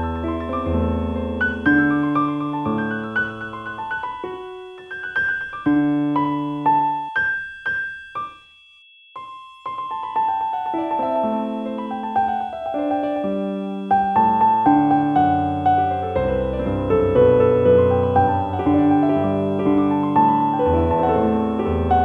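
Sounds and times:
slow piano music: 0.0 - 8.6, 9.2 - 22.0.

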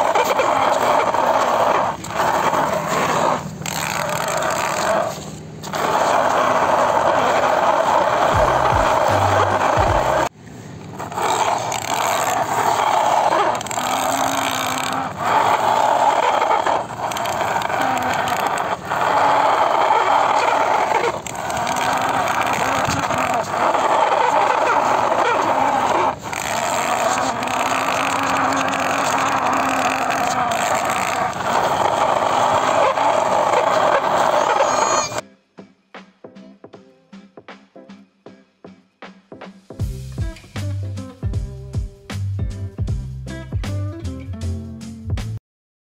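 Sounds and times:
toy vehicles scraping through sand: 0.0 - 35.2.

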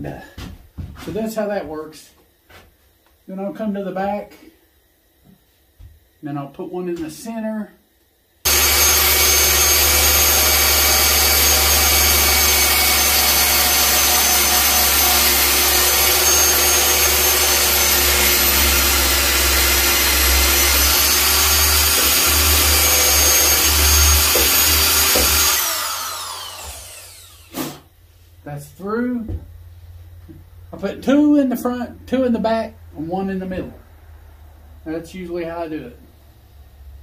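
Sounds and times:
electric drill boring: 8.5 - 27.8.

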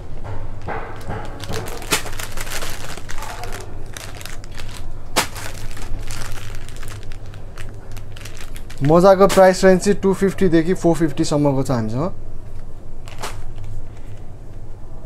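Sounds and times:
steady low hum: 0.0 - 15.0
packaging crinkling: 0.6 - 9.7.

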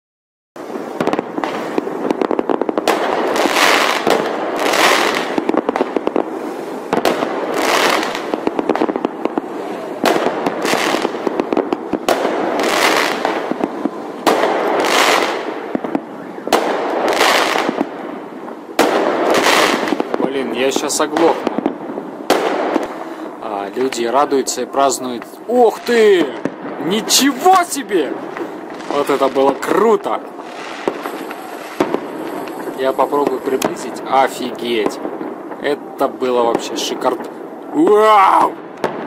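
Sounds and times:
firework shells bursting: 0.6 - 20.2, 28.1 - 35.7
fireworks crackling: 0.6 - 39.0.

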